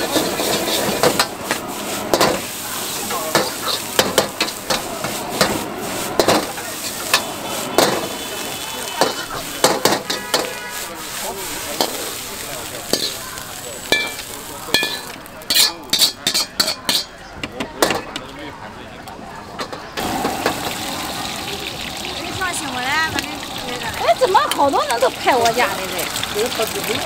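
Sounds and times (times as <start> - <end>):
ladle clanging against wok: 0.0 - 2.5, 3.3 - 8.1, 8.9 - 10.8, 12.9 - 13.2, 13.8 - 17.2
food sizzling: 0.0 - 17.2, 19.6 - 27.0.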